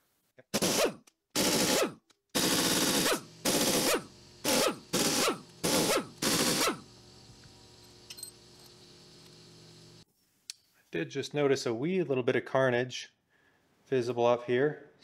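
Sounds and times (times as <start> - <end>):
pneumatic impact wrench hammering: 0.5 - 6.9
faint steady hum: 3.2 - 10.9.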